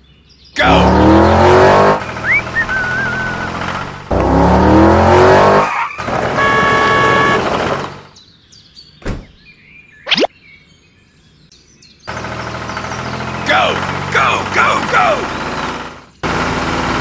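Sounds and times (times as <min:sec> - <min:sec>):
car engine revving: 0:00.6 - 0:08.1, 0:12.1 - 0:17.0.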